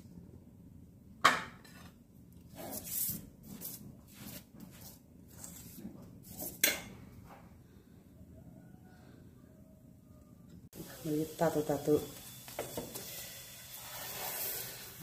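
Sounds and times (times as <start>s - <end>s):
spatula scraping griddle: 12.6s - 15.0s.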